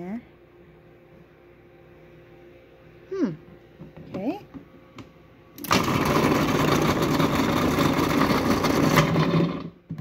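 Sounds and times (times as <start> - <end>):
food processor motor humming: 5.6 - 9.8.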